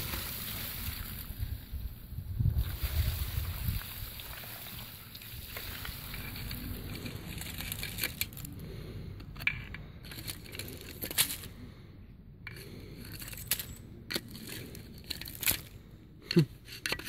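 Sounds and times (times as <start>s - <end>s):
metal rod scraping slag: 16.6s - 17.0s.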